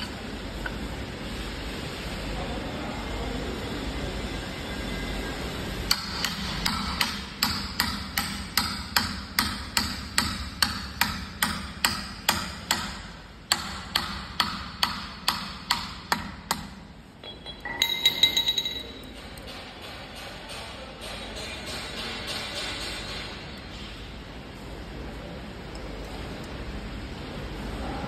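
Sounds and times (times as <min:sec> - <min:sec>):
metallic ringing jingle: 0:17.2 - 0:19.2.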